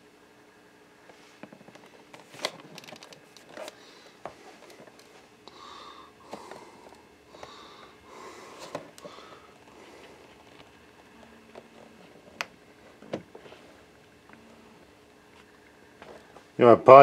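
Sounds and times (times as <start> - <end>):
nasal breaths: 3.7 - 10.6.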